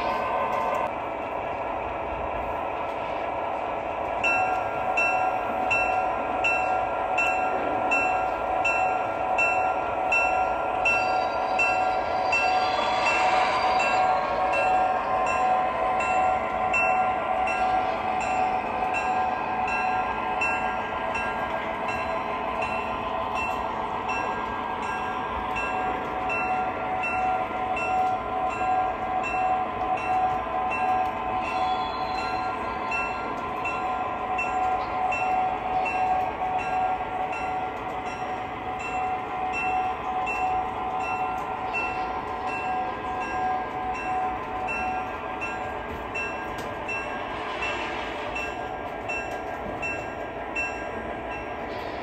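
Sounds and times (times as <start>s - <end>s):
locomotive bell ringing: 4.1s - 52.0s.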